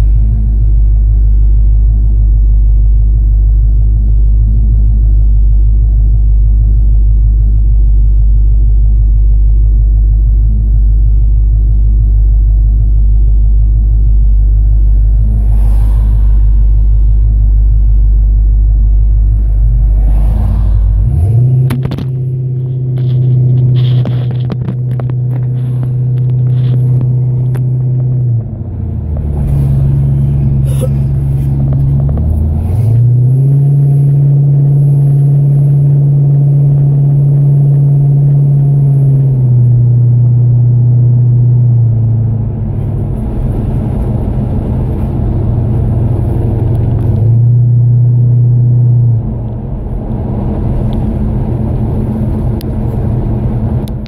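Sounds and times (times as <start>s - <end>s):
car engine idling with deep rumble: 0.0s - 54.0s
wind and road crackles on microphone: 13.8s - 54.0s.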